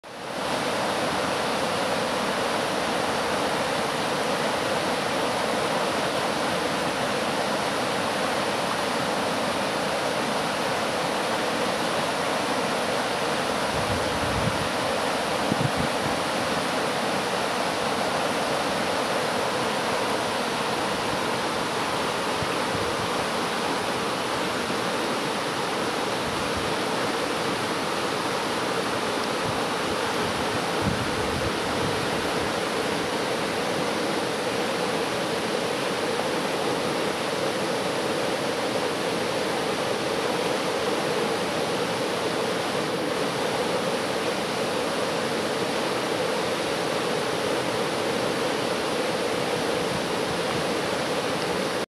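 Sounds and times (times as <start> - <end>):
river water rushing: 0.0 - 51.9.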